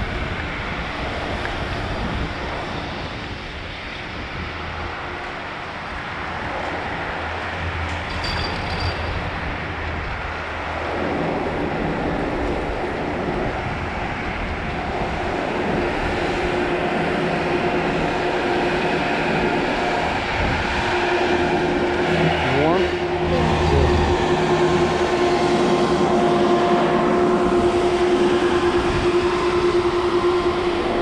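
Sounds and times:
steady tone: 16.5 - 31.0.

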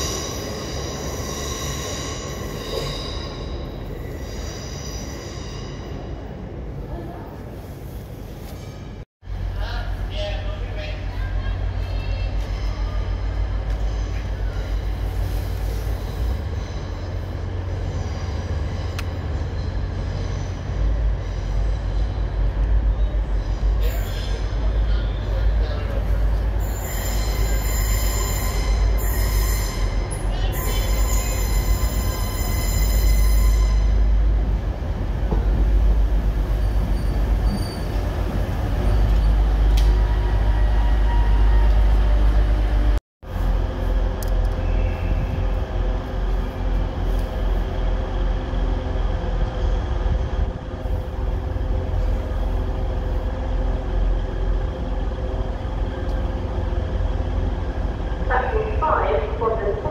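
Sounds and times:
train wheels squealing: 0.0 - 6.3, 12.1 - 25.4, 26.3 - 34.1, 36.4 - 39.5
train rumbling past: 0.0 - 59.9
diesel train engine humming: 9.2 - 59.9.

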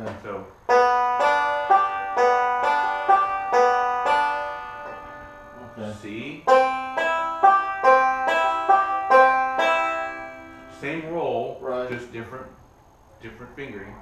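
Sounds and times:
banjo picked slowly: 0.7 - 10.8.

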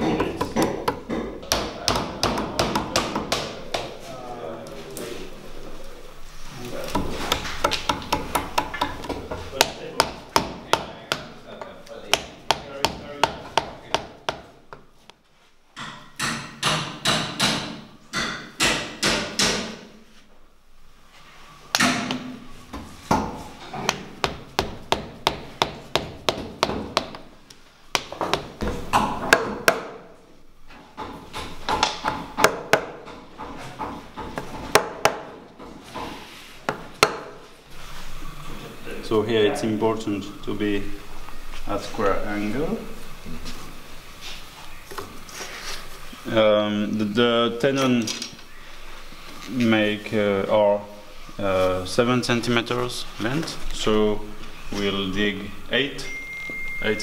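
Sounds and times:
mallet striking chisel into wood: 0.0 - 3.9, 6.9 - 14.8, 15.8 - 19.9, 23.1 - 27.2, 27.9 - 30.0, 31.0 - 33.1, 34.2 - 35.3, 36.7 - 37.4.

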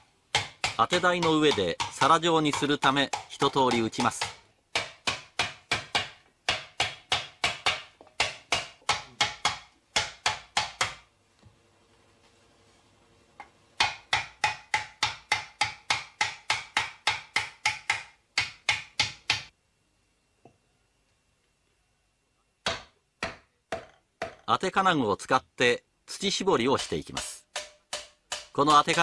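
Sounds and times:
hammer striking metal disc: 26.8 - 29.0.

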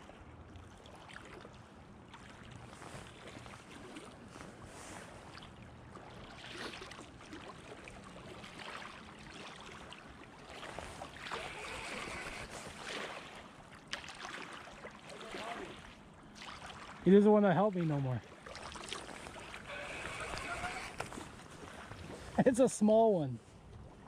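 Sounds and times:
river water flowing against rocks: 5.7 - 23.3.

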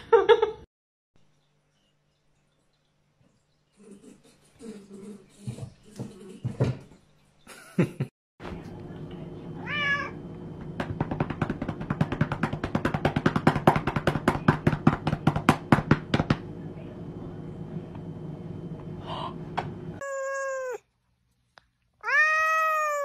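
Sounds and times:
cat meowing: 9.6 - 10.2, 20.0 - 20.8, 22.0 - 23.0.

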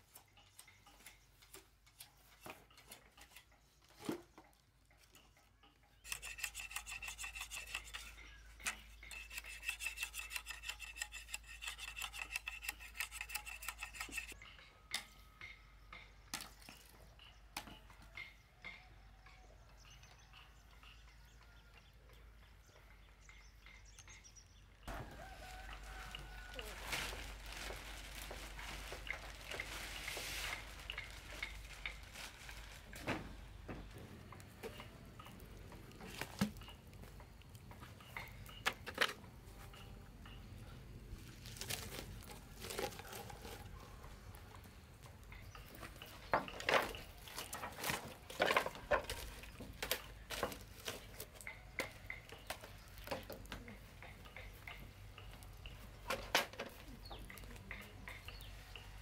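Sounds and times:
plastic bag rustling: 25.9 - 33.6.

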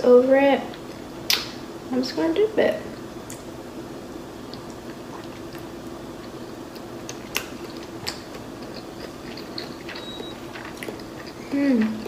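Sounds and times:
steady low hum: 0.0 - 12.0
biting and chewing: 4.5 - 12.0
wet mouth clicks: 7.0 - 12.0.

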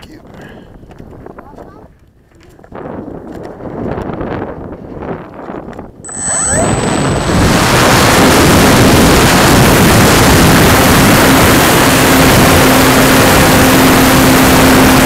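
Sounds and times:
wind noise on microphone: 0.0 - 15.0
electric motor and propeller whine: 6.1 - 15.0.

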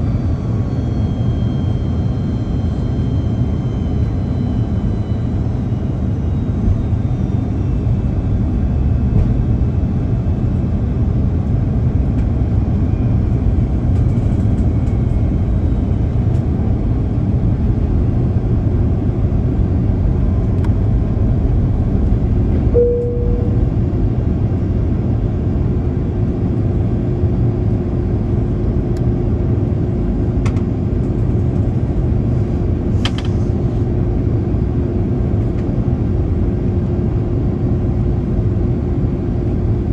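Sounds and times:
low rumble of airflow and engines: 0.0 - 39.9
steady hum: 15.8 - 30.2
brief higher tone: 22.7 - 23.9.

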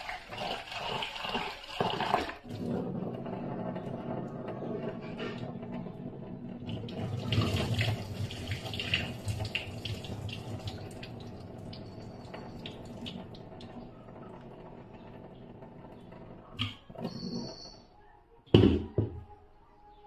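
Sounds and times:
water splashing in a sink: 0.0 - 2.7, 6.6 - 13.8.

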